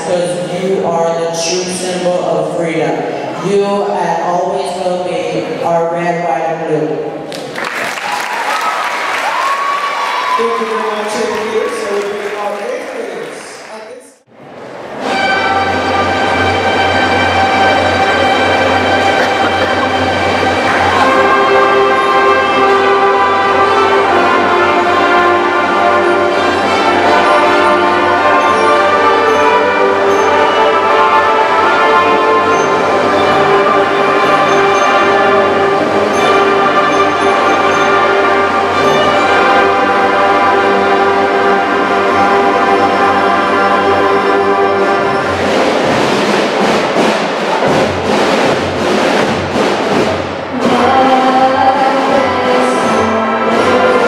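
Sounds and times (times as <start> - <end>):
band playing brass and violins: 15.0 - 54.0.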